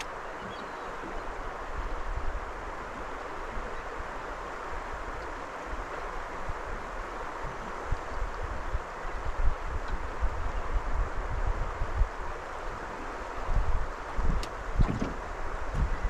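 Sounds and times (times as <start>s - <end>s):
rushing water: 0.0s - 16.0s
wind buffeting microphone: 6.2s - 16.0s.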